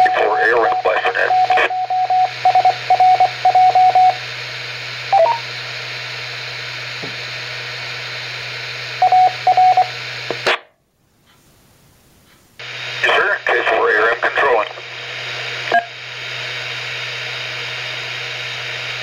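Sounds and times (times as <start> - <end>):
radio static hiss: 0.0 - 2.8, 10.0 - 10.6, 12.6 - 19.0
radio tone beeps: 0.0 - 4.2, 5.1 - 5.5, 9.0 - 9.9, 15.7 - 16.0.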